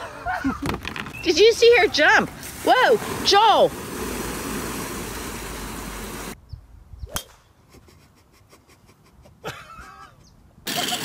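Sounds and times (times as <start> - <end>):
water splashing: 1.3 - 6.4.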